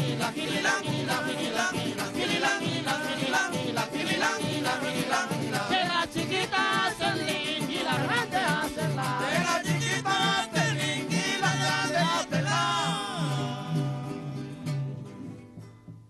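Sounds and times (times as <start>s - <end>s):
men singing: 0.0s - 15.0s
strummed string instruments: 0.0s - 16.0s.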